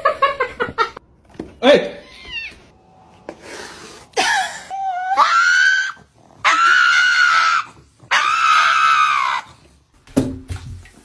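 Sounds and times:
pug screaming high-pitched cries: 4.6 - 9.6.

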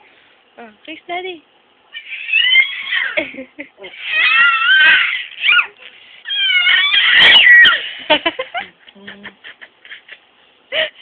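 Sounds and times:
baby crying: 1.9 - 3.2, 3.8 - 7.8.

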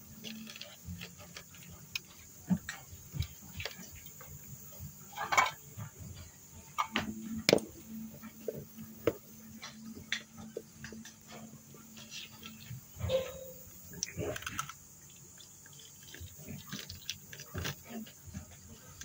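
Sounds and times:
clicks and knocks on metal bowls: 5.1 - 5.6.

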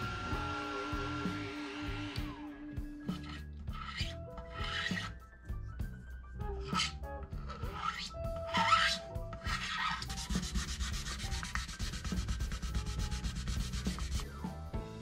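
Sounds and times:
hand sanding rubbing: 3.1 - 5.1, 6.6 - 14.4.

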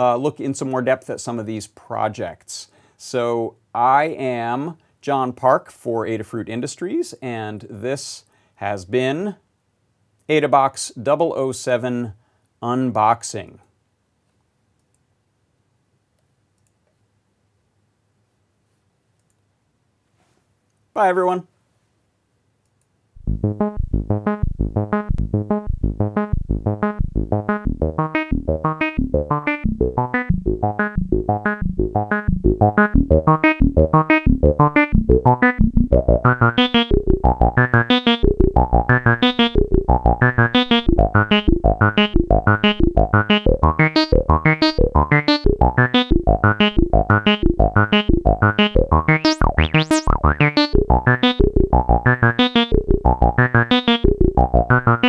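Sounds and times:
music with pulsing beat: 23.2 - 55.0.

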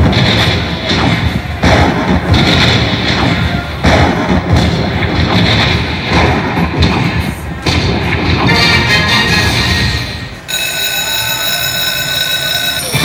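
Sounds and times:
heavy thuds: 0.0 - 8.6
slot machine game music: 8.4 - 13.0.

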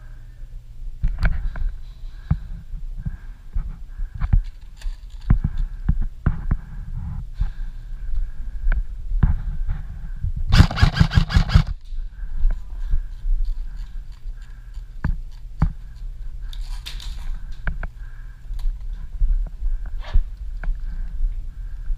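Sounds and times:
gear knocking: 10.5 - 11.7
airsoft rifle full-auto burst: 10.5 - 11.8.

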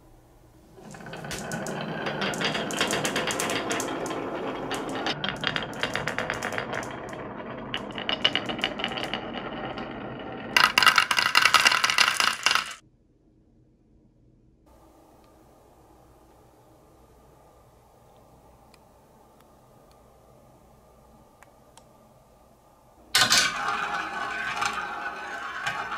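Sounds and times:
marbles clattering: 0.8 - 12.8, 23.2 - 25.9
marbles clicking: 0.8 - 12.8, 23.2 - 25.9
marbles rolling on wooden track: 0.8 - 12.8, 23.2 - 25.9.

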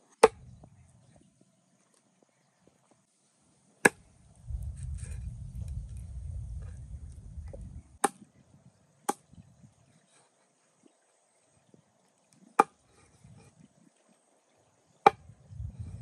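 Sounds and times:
cleaver chopping on wooden board: 0.2 - 0.4, 8.0 - 8.2
low rumble: 4.4 - 8.0, 15.3 - 16.0.

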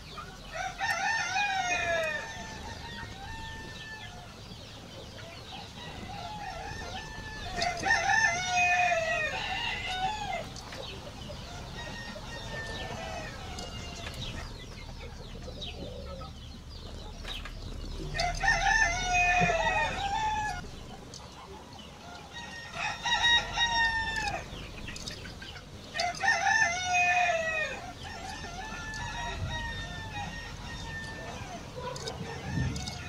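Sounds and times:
roosters crowing: 0.0 - 33.0.

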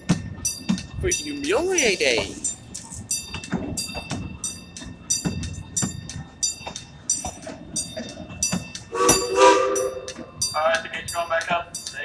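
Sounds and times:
train running gear clicking: 0.0 - 12.0
steam whistle blast: 8.9 - 10.3.

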